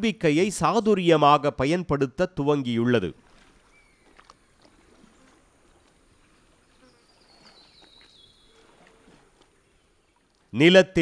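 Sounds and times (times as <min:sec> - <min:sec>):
insects buzzing: 0:03.7 - 0:09.6.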